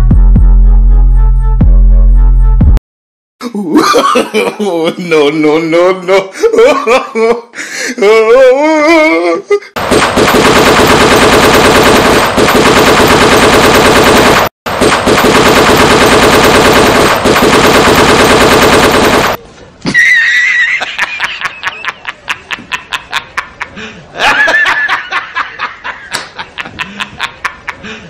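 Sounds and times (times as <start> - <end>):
machine-gun firing: 9.8 - 19.4.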